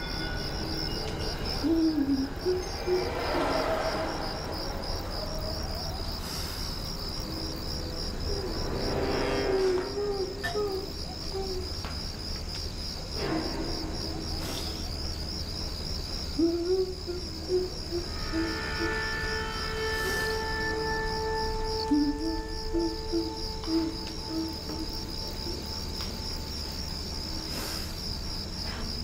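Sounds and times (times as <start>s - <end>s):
low wavering tones: 0.0s - 11.6s, 13.6s - 28.0s
crickets chirping: 0.0s - 29.0s.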